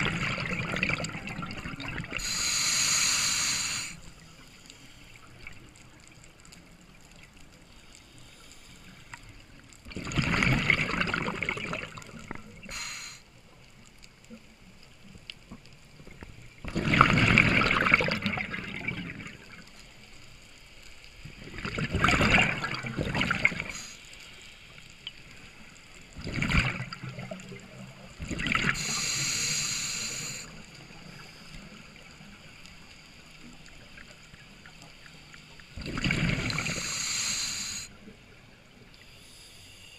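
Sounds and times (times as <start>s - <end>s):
bubbling exhaled air: 0.0s - 4.0s, 9.9s - 13.2s, 16.6s - 19.6s, 21.4s - 24.0s, 26.2s - 27.6s, 28.2s - 30.6s, 35.8s - 37.9s.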